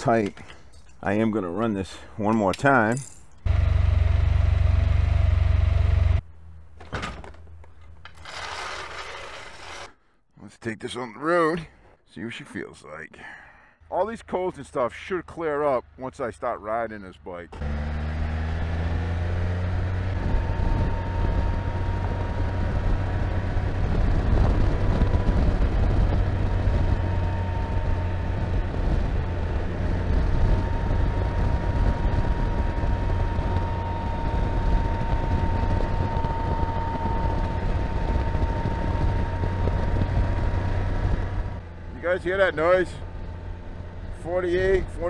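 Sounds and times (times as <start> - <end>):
road noise: 0.0 - 9.9, 13.8 - 45.0
motorcycle engine at speed: 3.4 - 6.3, 17.5 - 45.0
wind noise: 19.8 - 41.7.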